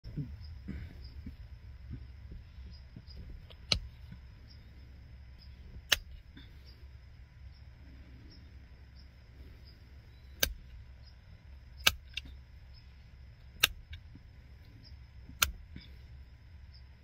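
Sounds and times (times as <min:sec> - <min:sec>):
flint flakes snapping clicks: 0:03.4 - 0:04.2, 0:05.8 - 0:06.2, 0:11.8 - 0:12.3, 0:13.5 - 0:14.0.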